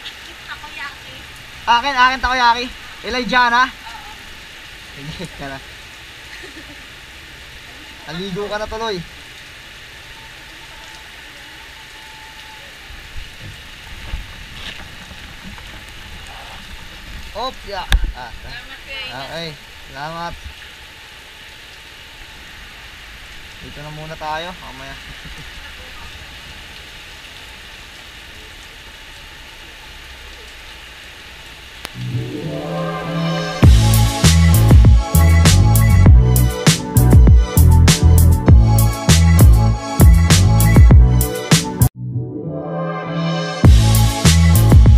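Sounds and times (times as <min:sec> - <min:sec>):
steady rain falling: 0:00.0 - 0:41.9, 0:43.6 - 0:44.9
low rumble: 0:32.0 - 0:35.0
music: 0:32.0 - 0:44.9.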